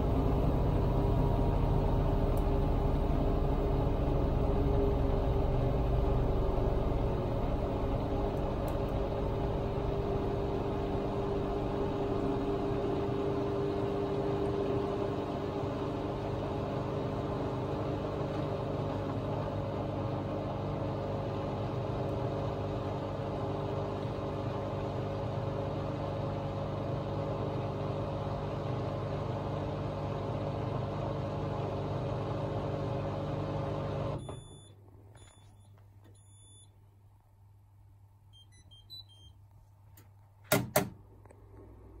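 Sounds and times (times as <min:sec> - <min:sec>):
low hum: 0:00.0 - 0:15.7
washing machine spinning: 0:00.0 - 0:34.7
faint short beeps: 0:34.2 - 0:36.7.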